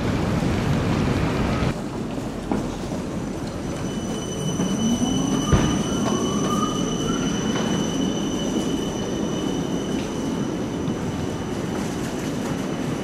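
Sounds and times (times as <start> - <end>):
steady high squeal: 3.6 - 11.9.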